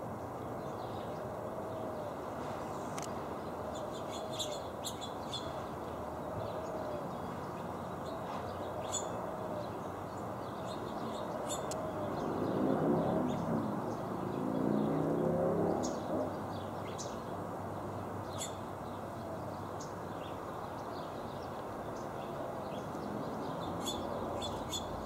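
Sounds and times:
finches chirping: 3.7 - 5.6, 8.8 - 9.2, 10.5 - 12.3, 22.0 - 25.0.

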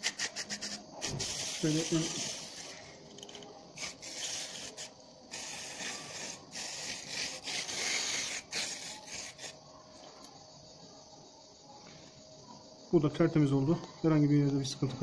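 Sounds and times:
aerosol spray hissing in bursts: 0.0 - 2.8, 3.7 - 9.6.

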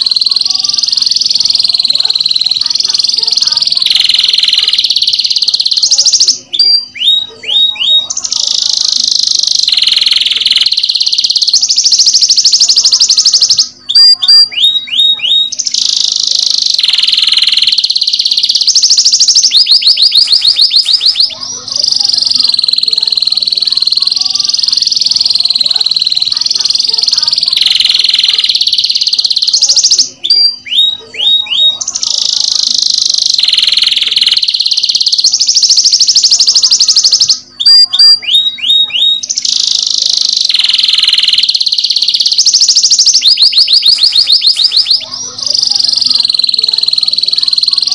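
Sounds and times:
canary trilling: 0.0 - 47.9.

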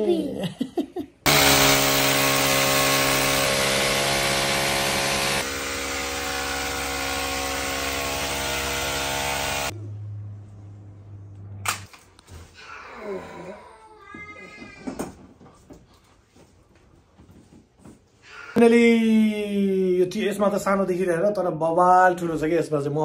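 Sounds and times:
electric power drill running: 1.3 - 9.7.

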